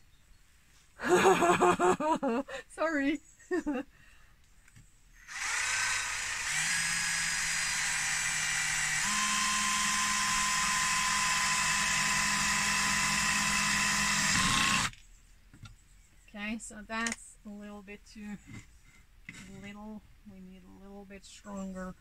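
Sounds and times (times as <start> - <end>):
cordless drill whining: 5.2 - 15.0.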